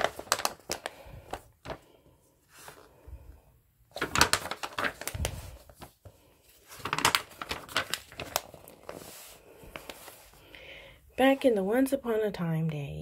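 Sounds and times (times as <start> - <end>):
glossy paper pages rustling: 0.0 - 3.3, 3.9 - 10.5.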